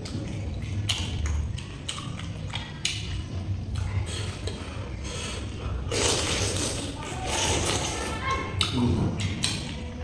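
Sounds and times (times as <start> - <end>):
wet chewing and smacking: 0.0 - 4.7, 8.6 - 10.0.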